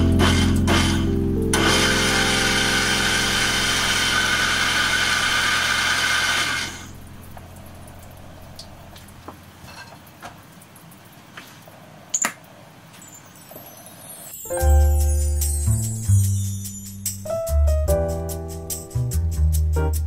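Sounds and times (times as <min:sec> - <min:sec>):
blender motor running: 0:00.3 - 0:07.0.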